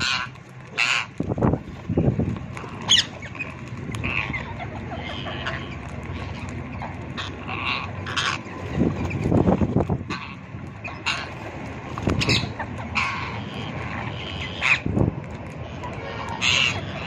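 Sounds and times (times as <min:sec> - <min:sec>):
parakeets squawking: 0:00.0 - 0:15.0, 0:15.6 - 0:17.0
parakeet screeches: 0:02.7 - 0:06.4.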